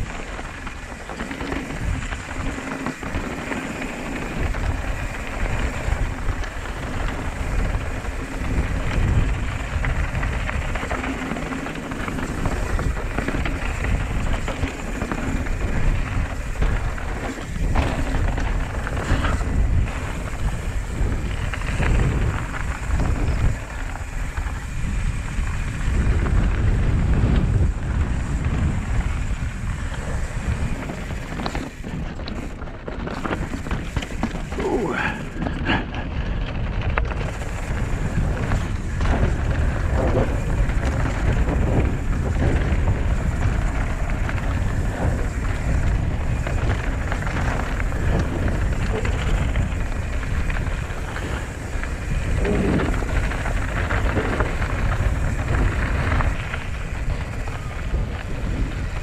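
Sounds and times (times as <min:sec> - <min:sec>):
bike knocking and rattling: 0:00.0 - 0:59.0
bike tyres rumbling on dirt: 0:00.0 - 0:59.0
wind rushing over microphone: 0:00.0 - 0:59.0.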